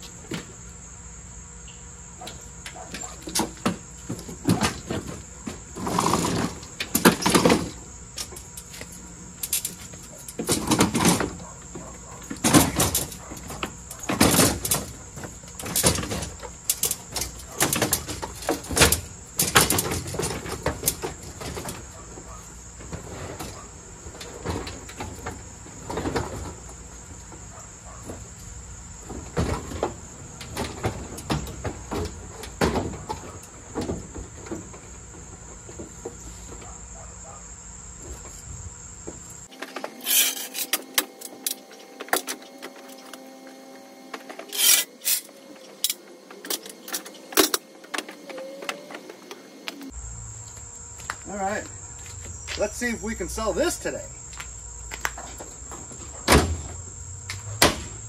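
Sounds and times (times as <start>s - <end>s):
high insect drone: 0.0s - 58.0s
lawn mower clanking on metal ramp: 2.2s - 28.3s, 29.0s - 36.8s, 39.4s - 43.5s, 44.1s - 49.9s
steady hum: 28.2s - 58.0s.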